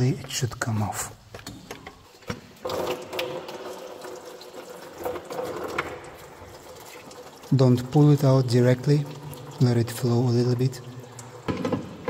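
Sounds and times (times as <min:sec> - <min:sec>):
coolant pouring into pan: 0:02.6 - 0:12.0.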